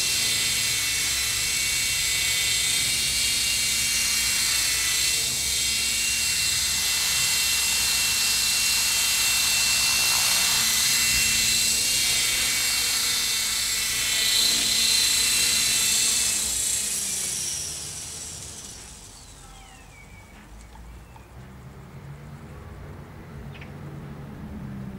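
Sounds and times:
toy helicopter motor and rotor: 0.0s - 21.4s
motor winding down: 0.0s - 22.3s.

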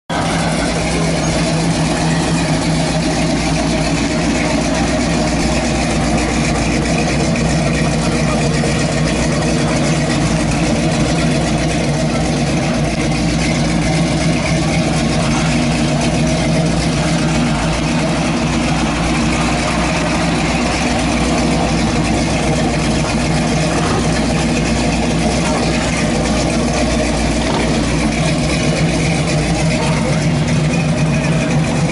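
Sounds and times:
car engine idling: 0.1s - 31.9s.

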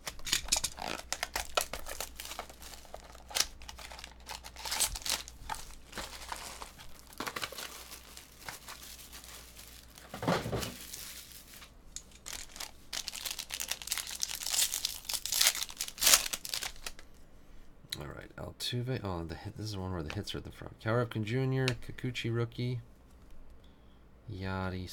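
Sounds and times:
foil pack tearing: 0.0s - 17.0s
foil wrappers crinkling: 0.0s - 17.1s.

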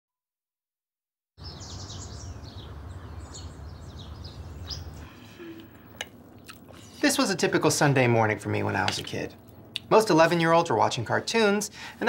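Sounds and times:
birds chirping: 1.4s - 10.6s.

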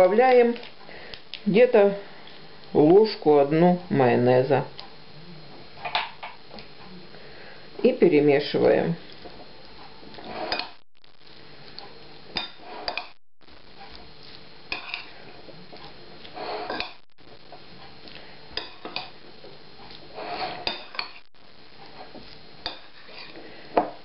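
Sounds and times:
metal spoon stirring in ceramic bowl: 14.2s - 17.0s, 19.9s - 21.2s, 21.9s - 23.4s.

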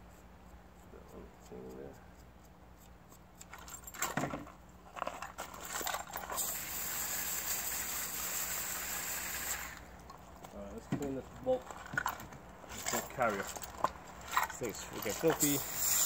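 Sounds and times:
metal parts clinking: 5.1s - 6.5s
water spraying from hose: 6.3s - 9.9s, 15.3s - 16.0s.

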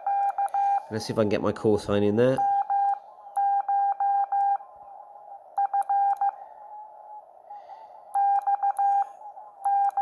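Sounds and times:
morse code beeps: 0.0s - 1.0s, 2.4s - 4.6s, 5.6s - 6.4s, 8.2s - 10.0s.

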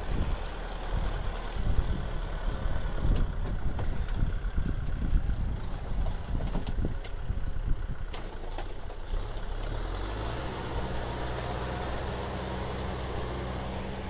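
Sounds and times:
wind buffeting microphone: 0.0s - 8.1s
tractor diesel engine running: 0.0s - 14.0s.

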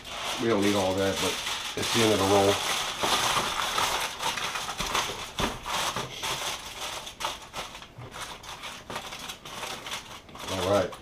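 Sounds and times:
aluminum foil crinkling: 0.0s - 11.0s.

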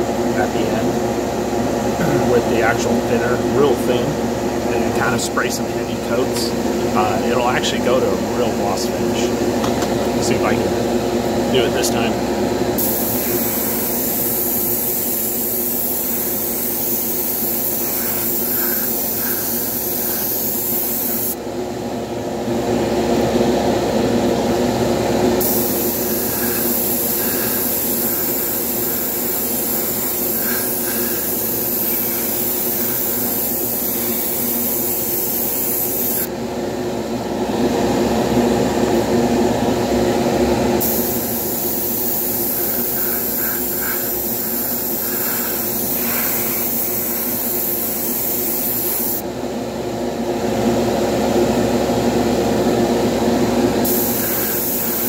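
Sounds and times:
machine hum: 0.0s - 55.0s
airbrush spraying hiss: 12.8s - 21.4s, 25.4s - 36.3s, 40.8s - 49.2s, 53.8s - 55.0s.

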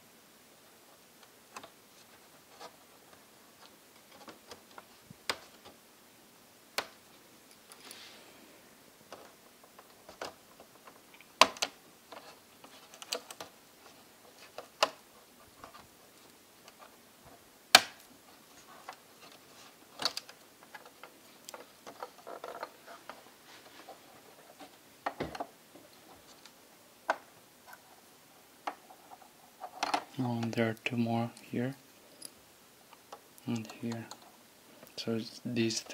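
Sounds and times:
plastic laptop parts handled: 9.0s - 17.0s, 17.8s - 27.8s.

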